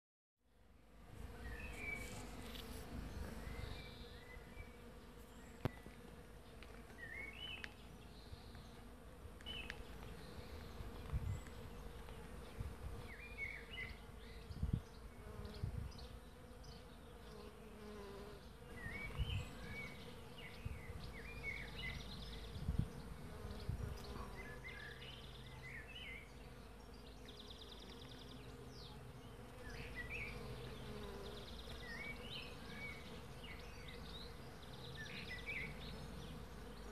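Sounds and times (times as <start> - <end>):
bees humming: 26.2 - 36.9.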